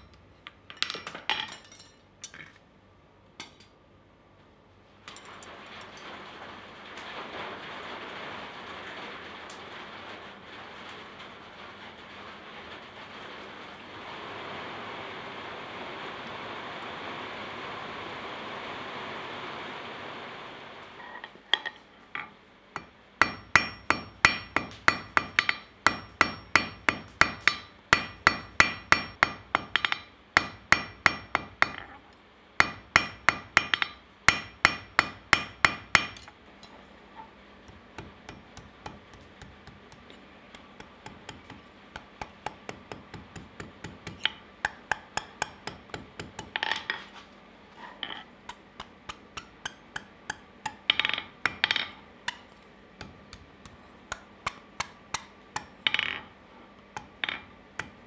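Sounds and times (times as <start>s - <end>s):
hammer striking steel on anvil: 22.8s - 31.9s, 32.6s - 36.4s, 37.7s - 47.0s, 48.5s - 56.2s, 57.0s - 58.0s.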